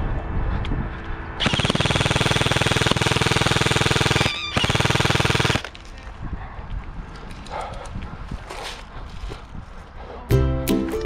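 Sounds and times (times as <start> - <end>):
airsoft rifle firing full auto: 1.4 - 5.7.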